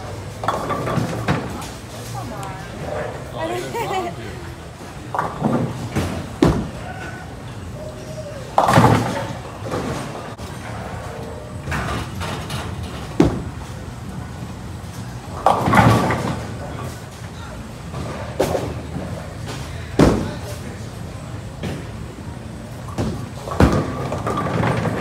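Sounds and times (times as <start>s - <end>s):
bowling balls crashing into pins: 0.3s - 1.8s, 8.5s - 10.4s, 11.7s - 13.6s, 15.4s - 16.6s, 22.9s - 25.0s.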